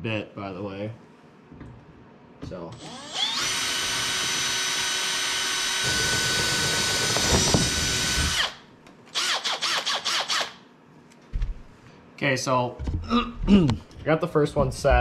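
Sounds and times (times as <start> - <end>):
drill motor spinning up and down: 2.8 - 8.6, 9.2 - 10.6
cordless drill whining: 2.8 - 10.6.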